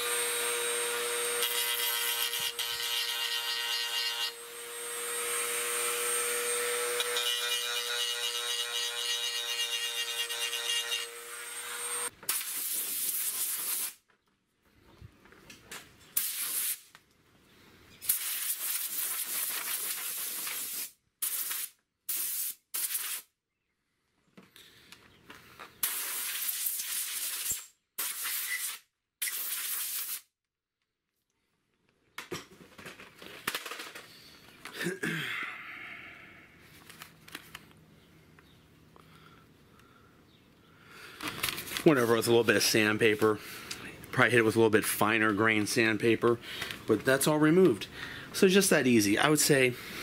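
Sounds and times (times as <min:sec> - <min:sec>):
scratchy rubbing and hissing: 0:18.0 - 0:23.3.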